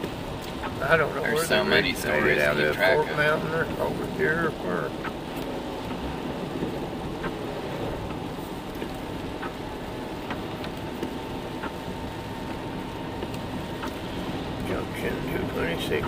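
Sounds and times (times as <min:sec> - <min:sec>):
car road and engine noise: 0:00.0 - 0:16.0
faint ticks: 0:08.0 - 0:14.8.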